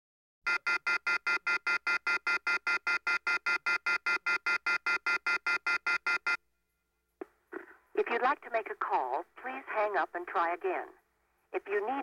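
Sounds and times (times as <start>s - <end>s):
telephone off-hook beeping: 0.5s - 6.4s.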